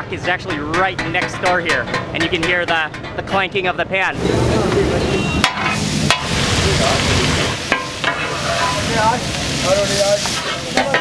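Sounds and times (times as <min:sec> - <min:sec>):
metal spatulas clanking on griddle: 0:00.0 - 0:03.4, 0:05.4 - 0:06.4, 0:07.7 - 0:08.9, 0:10.2 - 0:11.0
fish sizzling on a griddle: 0:05.4 - 0:11.0.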